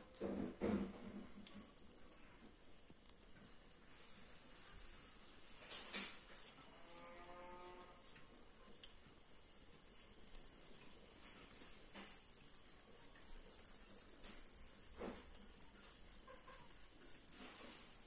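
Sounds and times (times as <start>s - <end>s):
kitten claws scratching: 5.7s - 18.0s.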